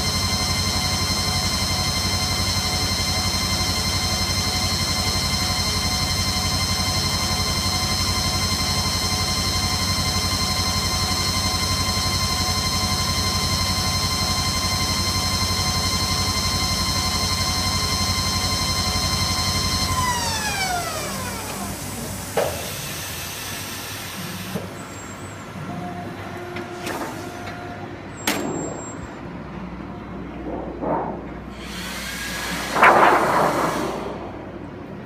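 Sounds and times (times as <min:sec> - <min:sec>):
motor whine falling in pitch: 0:00.0 - 0:23.0, 0:30.5 - 0:35.0.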